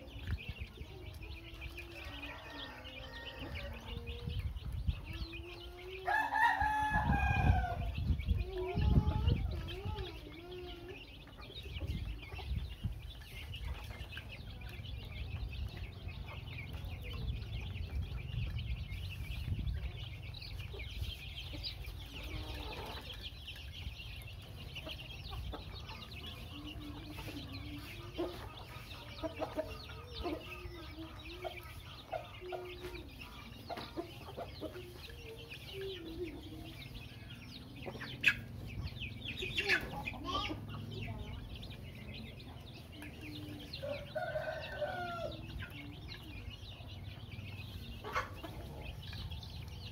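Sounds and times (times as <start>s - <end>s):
chicks peeping: 0.0s - 49.9s
rooster crowing: 6.0s - 7.8s.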